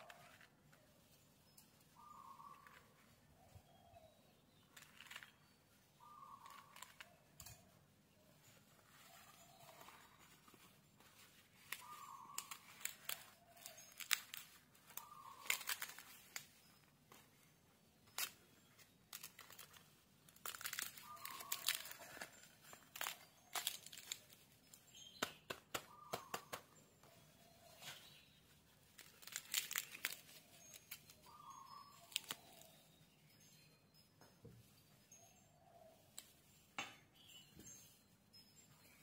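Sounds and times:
leaves crinkling and crackling: 6.0s - 7.2s, 8.8s - 16.6s, 19.1s - 24.8s, 28.8s - 32.8s.

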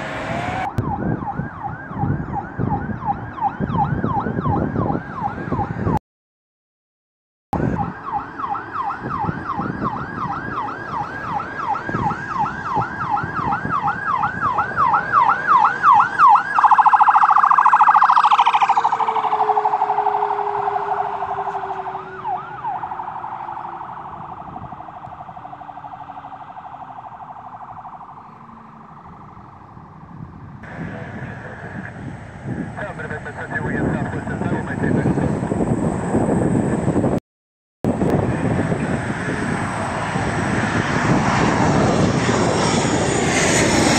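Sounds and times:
ambulance siren: 0.0s - 6.0s, 7.6s - 34.6s.

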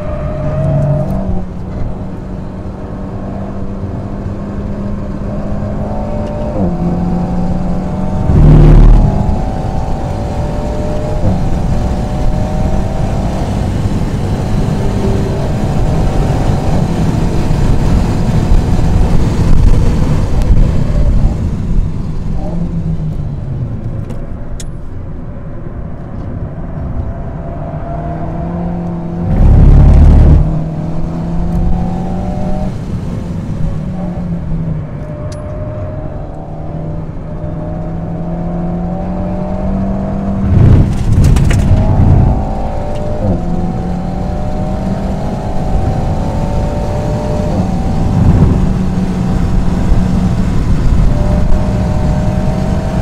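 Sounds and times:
car engine revving hard: 2.6s - 21.4s, 28.1s - 33.1s, 35.8s - 53.0s.

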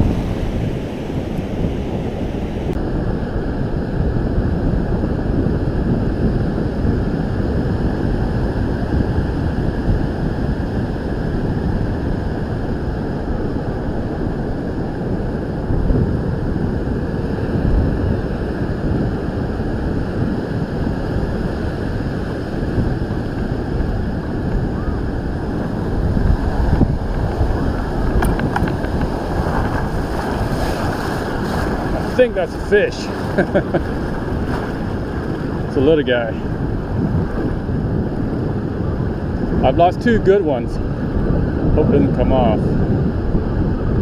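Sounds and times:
ocean surf breaking on beach: 0.0s - 44.0s
wind buffeting microphone: 0.0s - 44.0s.

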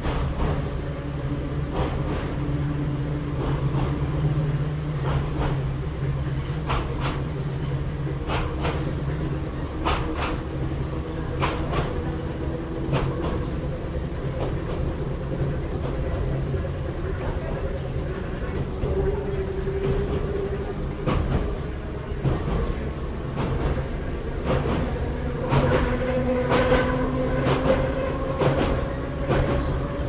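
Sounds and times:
train interior hum: 0.0s - 30.0s
wheels clicking over rail joints: 0.0s - 30.0s.

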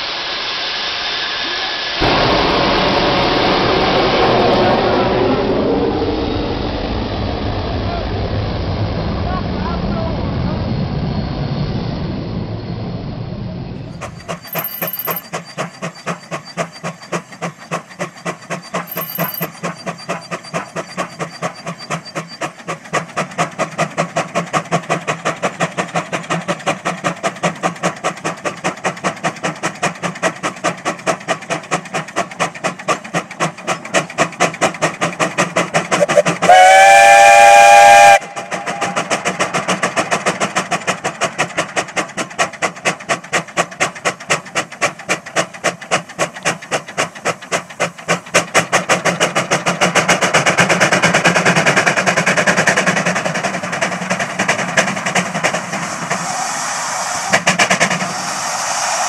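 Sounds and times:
jet engine roar: 0.0s - 14.4s, 55.4s - 59.0s
steam engine exhaust chuffing: 15.2s - 59.0s
steam whistle blowing: 36.0s - 38.4s.

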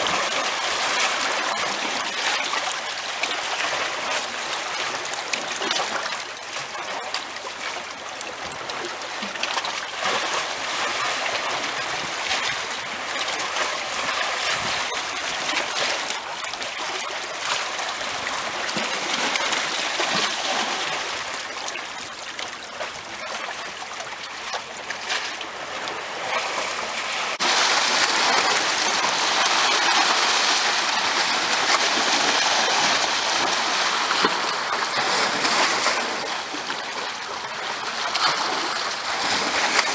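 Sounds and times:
seawater washing among rocks: 0.0s - 39.9s.

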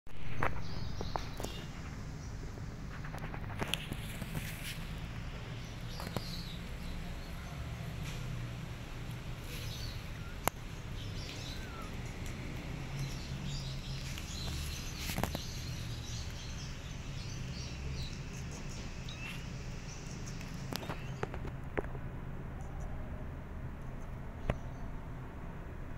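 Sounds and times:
bird chirps: 9.4s - 12.1s, 12.8s - 21.4s.

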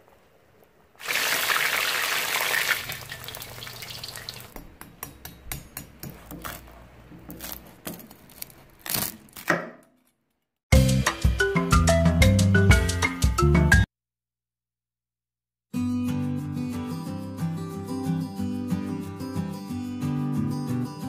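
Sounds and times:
pot hissing: 1.0s - 4.6s
knife cutting crispy skin crunching: 6.0s - 9.6s.

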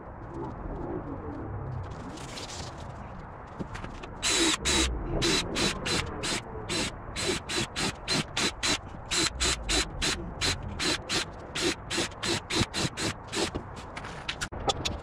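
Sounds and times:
nail gun firing: 4.2s - 13.6s.

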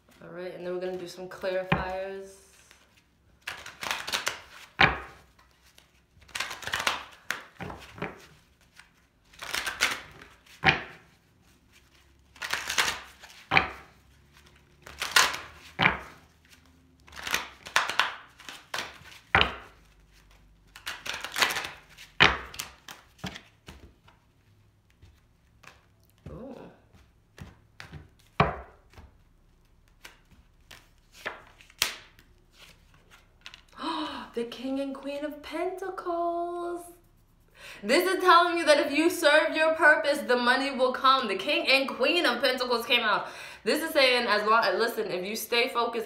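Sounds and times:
cards being shuffled: 0.8s - 33.8s.

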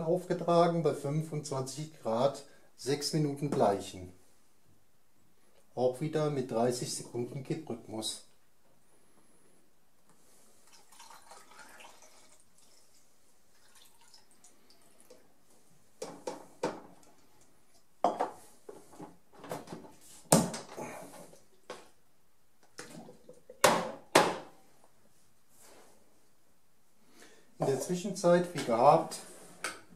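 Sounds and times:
liquid pouring into plastic tank: 10.6s - 15.2s.

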